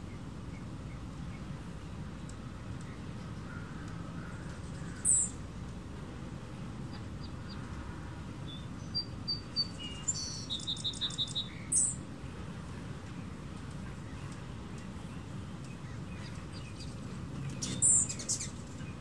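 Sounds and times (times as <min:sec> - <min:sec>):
hummingbirds chipping: 0:08.4 - 0:12.0, 0:12.9 - 0:19.0.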